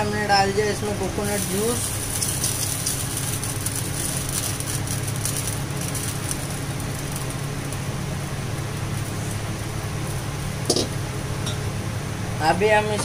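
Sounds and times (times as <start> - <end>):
faint crackling sizzles: 0.0 - 13.0
steady low hum: 0.0 - 13.0
liquid pouring into a pot: 1.4 - 10.2.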